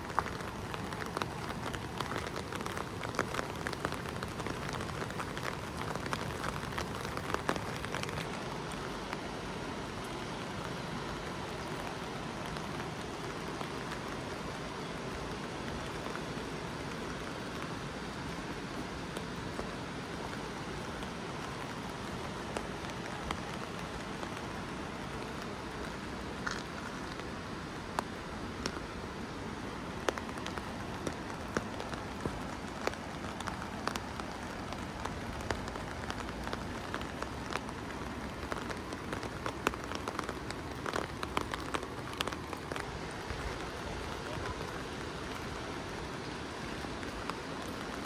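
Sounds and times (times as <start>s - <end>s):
raindrops tapping sharply: 0.0s - 9.3s, 29.8s - 48.0s
steady rain falling: 0.0s - 48.0s.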